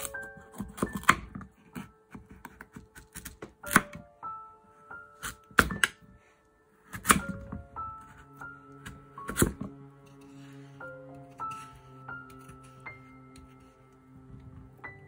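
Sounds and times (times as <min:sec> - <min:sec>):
soft background music: 0:00.0 - 0:15.0.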